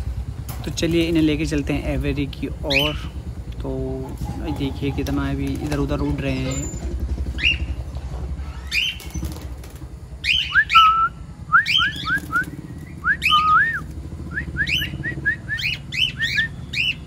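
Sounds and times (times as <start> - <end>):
low steady rumble: 0.0 - 17.0
pet birds chirping and whistling: 2.6 - 3.2, 4.2 - 9.4, 10.2 - 17.0.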